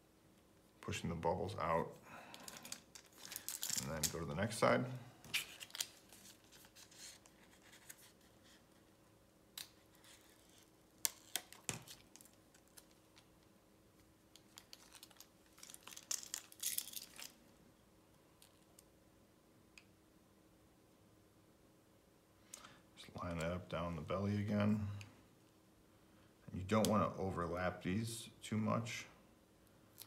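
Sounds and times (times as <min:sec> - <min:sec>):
plastic film crinkling: 0:02.3 - 0:04.6, 0:05.2 - 0:08.6, 0:09.6 - 0:13.5, 0:14.3 - 0:17.5.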